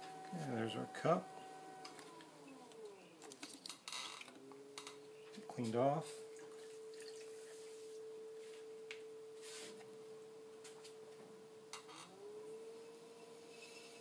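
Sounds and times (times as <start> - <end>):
potter's wheel motor whine: 0.0 - 3.3, 3.9 - 14.0.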